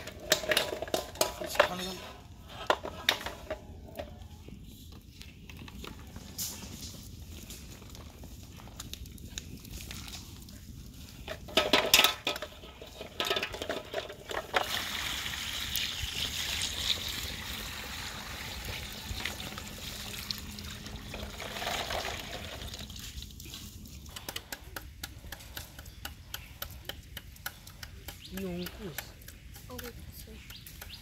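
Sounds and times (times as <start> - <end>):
eggs clattering into metal bowl: 0.0 - 3.6, 11.3 - 14.9, 21.0 - 22.8
water pouring into bowl: 14.6 - 23.0.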